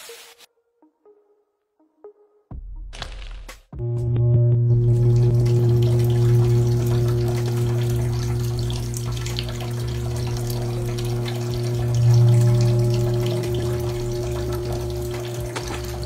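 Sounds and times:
water spraying and trickling: 0.0 - 0.5, 4.8 - 16.0
low motor hum: 3.8 - 16.0.

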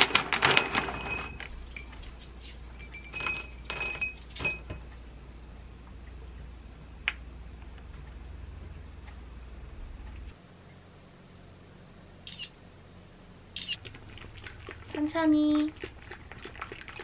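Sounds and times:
plastic bag rustling: 0.0 - 1.5.

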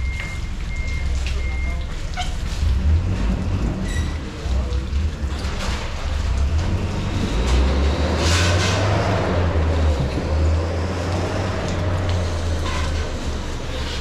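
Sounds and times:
vehicle engine rumble: 0.0 - 14.0.

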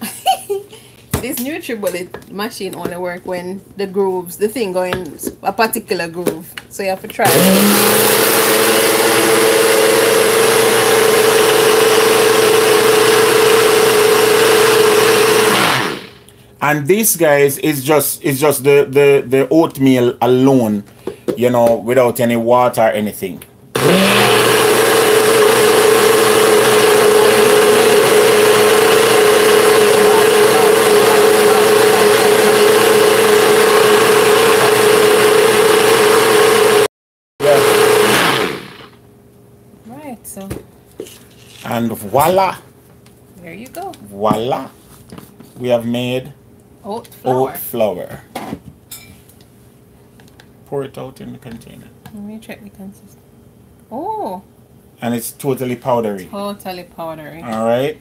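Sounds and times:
blender motor grinding oats: 7.2 - 16.3, 23.8 - 39.0.

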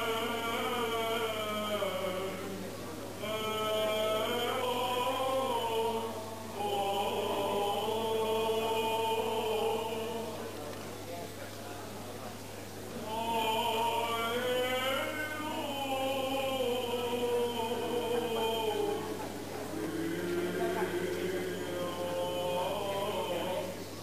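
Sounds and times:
voices chanting: 13.0 - 24.0.

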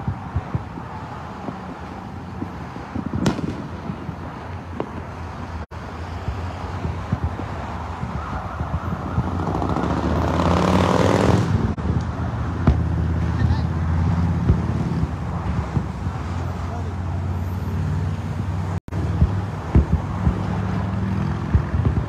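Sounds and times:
distant fireworks booming: 0.0 - 13.4, 14.0 - 16.4, 19.0 - 22.0
road traffic: 0.0 - 22.0
vehicle passing: 0.0 - 22.0
sharp firework bang: 3.0 - 4.2.

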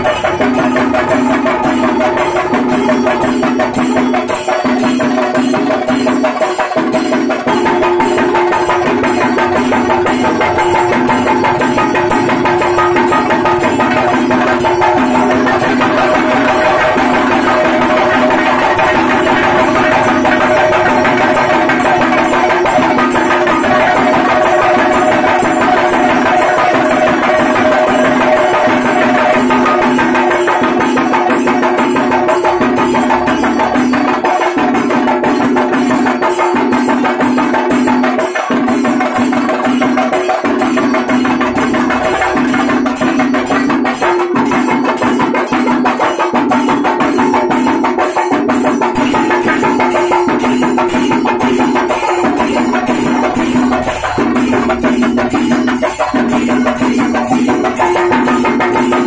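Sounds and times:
barrel drums beaten with sticks: 0.0 - 59.0
steady held tones: 7.5 - 24.9, 40.7 - 44.4, 48.9 - 58.6.

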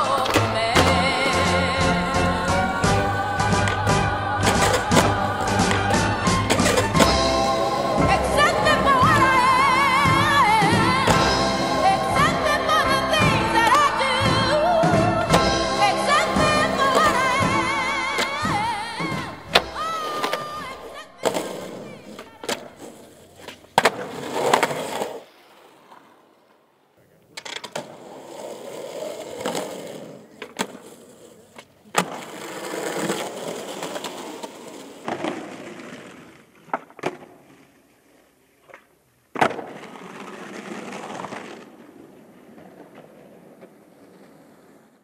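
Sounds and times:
skateboard wheels rolling on concrete: 0.0 - 45.0
skateboard tail pops and landings: 23.4 - 25.2, 31.6 - 37.9, 38.6 - 44.9.

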